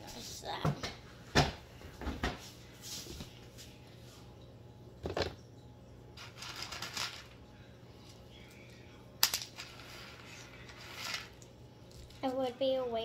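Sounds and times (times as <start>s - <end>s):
crinkly rustling: 6.2s - 7.4s.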